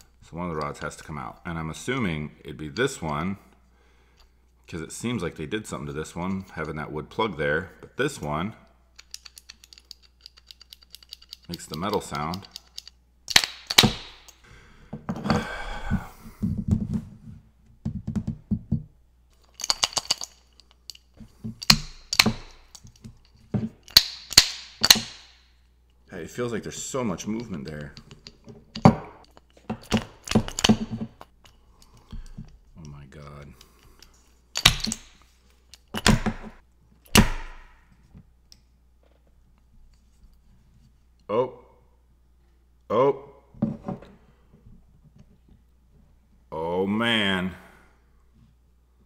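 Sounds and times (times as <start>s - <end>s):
metal rods clicking in wooden box: 9.0s - 14.4s, 19.5s - 21.0s
wooden puzzle being whacked: 24.0s - 25.4s, 36.0s - 37.8s.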